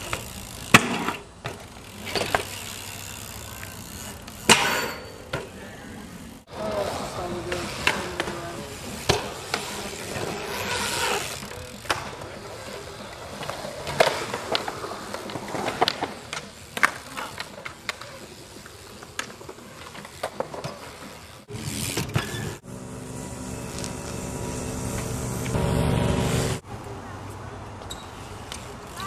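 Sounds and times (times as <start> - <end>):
bike tyres rolling on concrete: 0.0 - 29.0
bike landing knocks and clacks: 3.6 - 5.6, 7.5 - 10.6.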